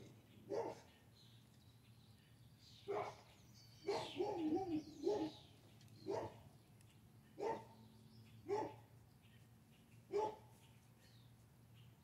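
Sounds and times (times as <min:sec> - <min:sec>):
dog barking: 0:00.5 - 0:00.9, 0:02.9 - 0:03.2, 0:03.8 - 0:05.4, 0:06.0 - 0:06.4, 0:07.4 - 0:07.8, 0:08.5 - 0:08.8, 0:10.1 - 0:10.5
dog yelping: 0:10.1 - 0:10.4.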